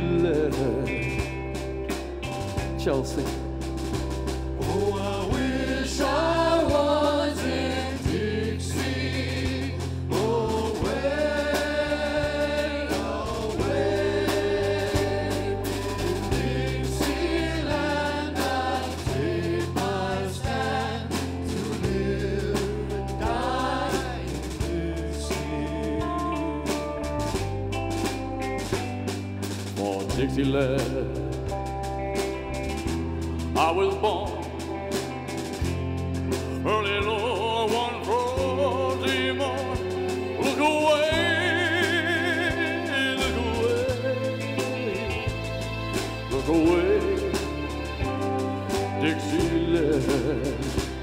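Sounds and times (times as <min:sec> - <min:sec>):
big band playing: 0:00.0 - 0:51.0
choir singing held notes: 0:04.6 - 0:27.2.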